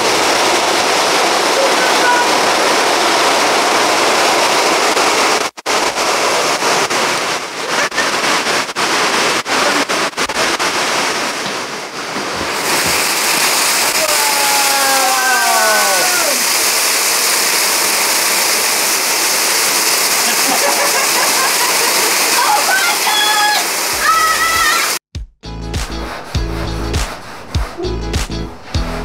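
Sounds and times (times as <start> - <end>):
heavy rain: 0.0 - 25.0
short falling whine: 25.8 - 29.0.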